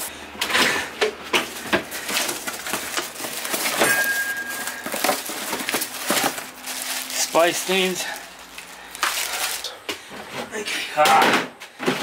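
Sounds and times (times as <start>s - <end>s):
plastic packaging crinkling: 1.9s - 9.7s
thin high tone: 3.8s - 5.0s.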